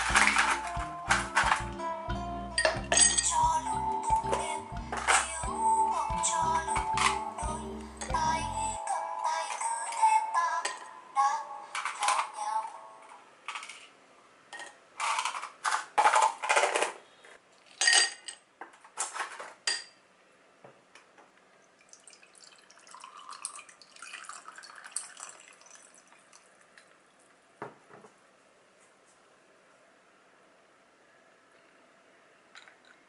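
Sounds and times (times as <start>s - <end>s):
ice cubes clinking in a glass: 0.0s - 1.6s, 17.7s - 18.4s
liquid pouring over ice: 21.8s - 27.0s.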